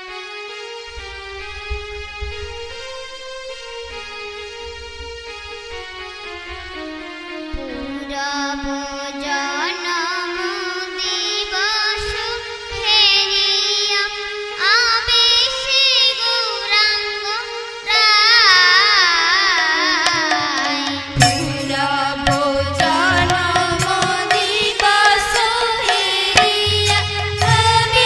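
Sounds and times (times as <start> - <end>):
wavering vocal melody: 17.9 - 28.0
drum strokes: 20.0 - 28.0
cymbal strikes: 20.1 - 28.0
steady drone: 20.3 - 28.0.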